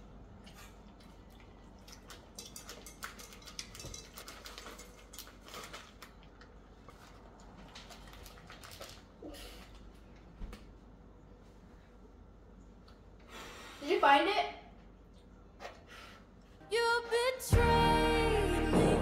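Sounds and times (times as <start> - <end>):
plastic bag crinkling: 3.3 - 9.8.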